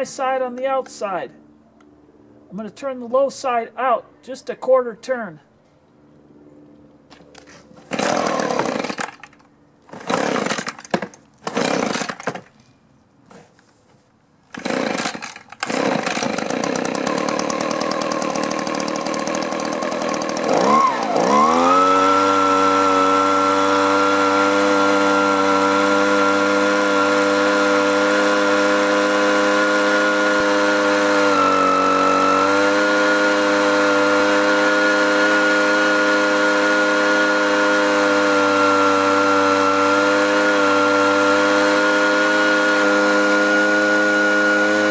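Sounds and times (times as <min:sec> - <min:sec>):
starter cord pulls: 0:07.2 - 0:12.6, 0:14.5 - 0:22.0
leaf blower engine running: 0:07.8 - 0:12.4, 0:14.5 - 0:44.9.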